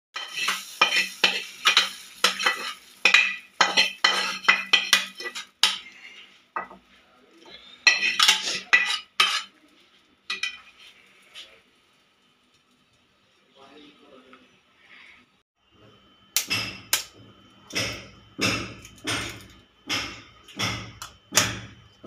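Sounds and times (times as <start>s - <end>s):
metal spatula scraping a pan: 0.2s - 6.8s, 7.8s - 9.6s, 10.3s - 11.4s.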